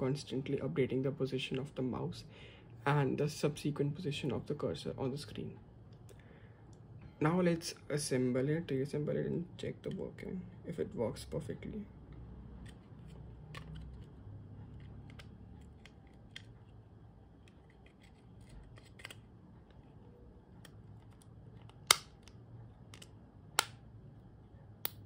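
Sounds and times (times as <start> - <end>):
plastic clicks of mouse parts: 12.6 - 14.1, 14.8 - 16.6, 20.6 - 23.8.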